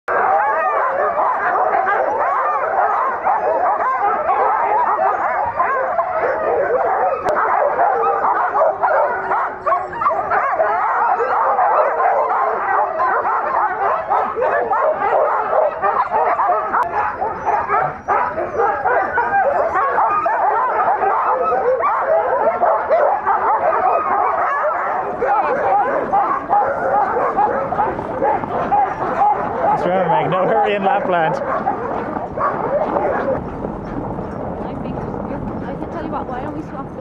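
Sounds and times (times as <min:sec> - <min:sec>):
dogs barking and yipping: 0:00.1 - 0:37.0.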